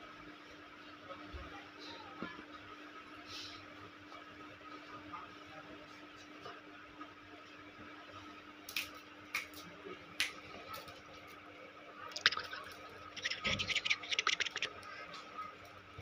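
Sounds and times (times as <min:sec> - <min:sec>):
faint steady hum: 0:09.9 - 0:16.0
puppy licking wet smacking clicks: 0:12.2 - 0:14.8.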